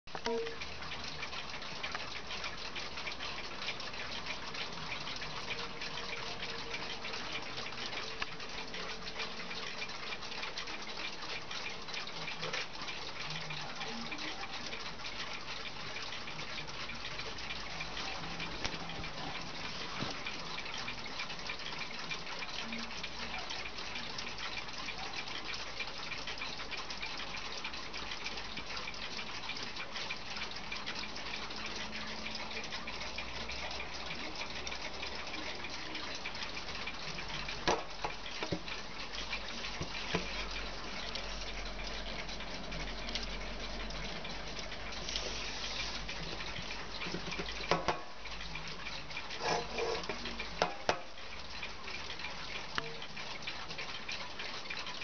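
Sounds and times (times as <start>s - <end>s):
wall clock ticking: 0.0s - 55.0s
knocks and clicks: 37.6s - 38.8s, 46.6s - 48.5s, 49.4s - 51.2s
steady hiss: 43.7s - 48.3s.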